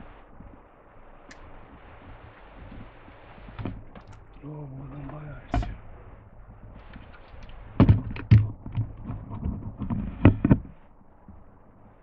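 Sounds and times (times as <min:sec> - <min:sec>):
faint steady hiss: 0:00.0 - 0:12.0
sharp thuds: 0:05.1 - 0:06.1.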